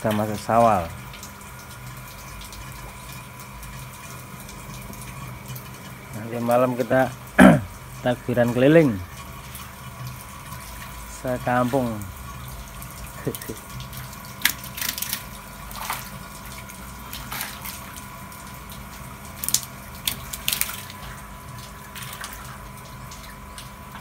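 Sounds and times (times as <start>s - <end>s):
pond water sloshing: 0.0s - 24.0s
steady hum: 0.0s - 24.0s.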